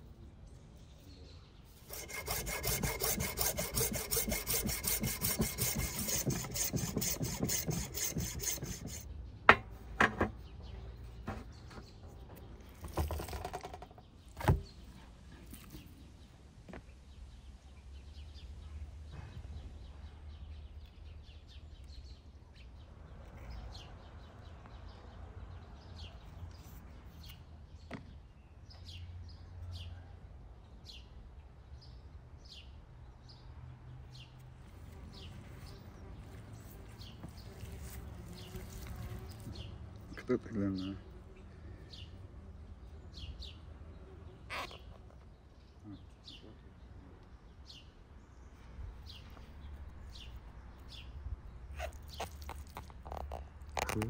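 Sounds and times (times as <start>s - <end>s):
saw strokes: 1.8s - 9.1s
sharp knocks: 1.9s - 10.4s.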